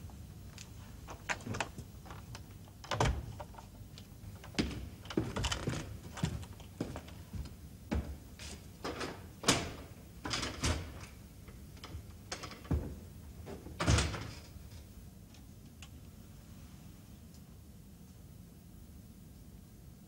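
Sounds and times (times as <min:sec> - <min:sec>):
door knocks and clunks: 0:12.6 - 0:14.4.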